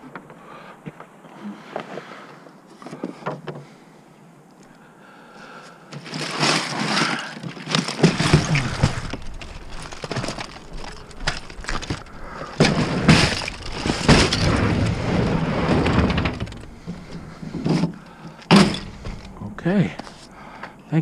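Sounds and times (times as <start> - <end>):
junk clattering in a dumpster: 6.0 - 20.3
low rumble: 8.2 - 20.4.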